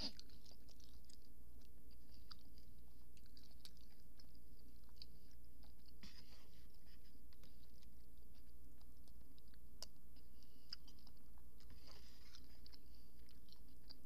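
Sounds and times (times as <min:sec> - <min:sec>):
dog chewing wet food: 0:00.0 - 0:06.0
steady low hum: 0:00.0 - 0:14.0.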